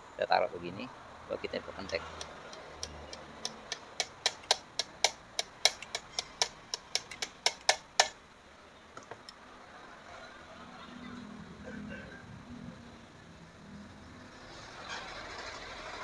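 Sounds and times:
pliers clicking on metal wrench: 1.8 - 8.1.

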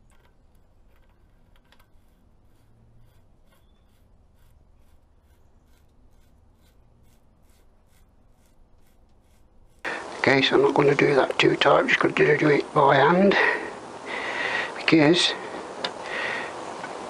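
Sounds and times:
faint ticking and scraping of nut: 0.0 - 10.0.

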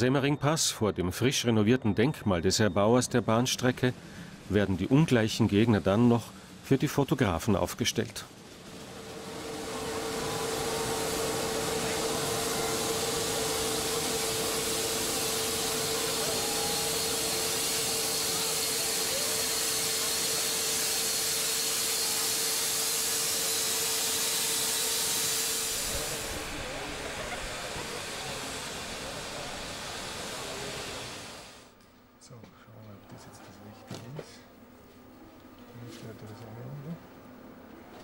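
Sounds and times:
steam locomotive blowing off steam: 3.4 - 31.7.

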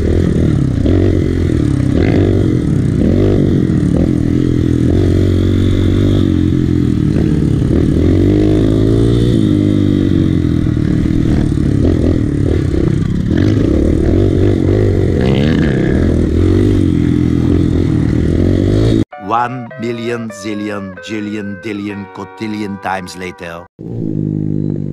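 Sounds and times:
dirt bike engine revving: 0.0 - 19.2.

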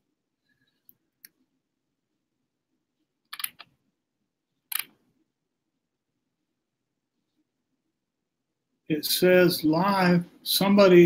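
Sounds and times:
computer clicks: 3.3 - 3.8, 4.7 - 5.0.

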